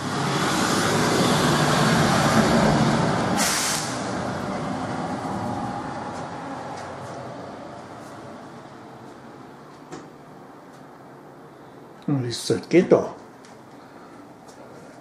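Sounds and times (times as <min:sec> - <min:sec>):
heavy vehicle rumbling past: 0:00.0 - 0:09.6
air brakes hiss: 0:03.4 - 0:04.1.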